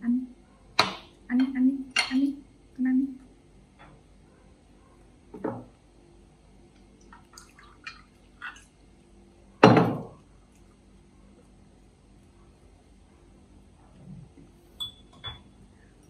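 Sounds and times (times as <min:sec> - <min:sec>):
glass clinking: 0:14.8 - 0:15.6.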